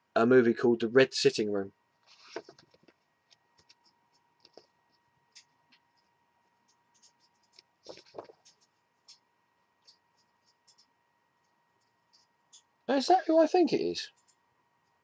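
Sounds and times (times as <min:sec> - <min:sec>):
book pages rustling: 0:02.1 - 0:03.0, 0:06.6 - 0:09.2.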